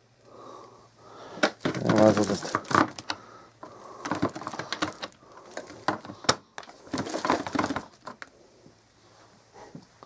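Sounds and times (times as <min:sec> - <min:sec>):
plastic vacuum clicks and knocks: 0:01.4 - 0:03.2, 0:04.0 - 0:08.2.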